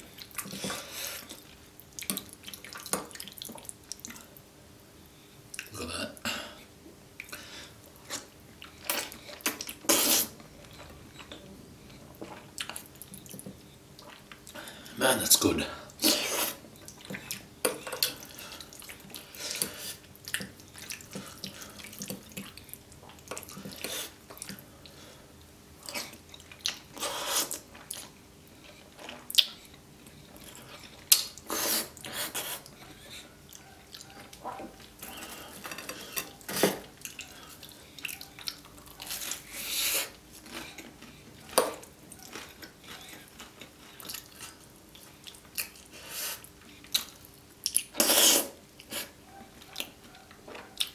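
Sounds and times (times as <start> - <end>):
chewing: 8.0 - 14.9, 16.1 - 25.1, 25.8 - 50.9
wet slurping of pasta: 31.4 - 32.7, 47.9 - 49.2.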